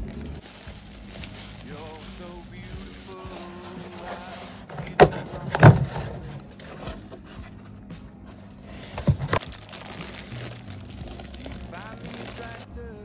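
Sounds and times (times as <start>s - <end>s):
cardboard carton rubbing and scraping: 1.4s - 12.6s
egg carton knocks: 4.7s - 6.2s.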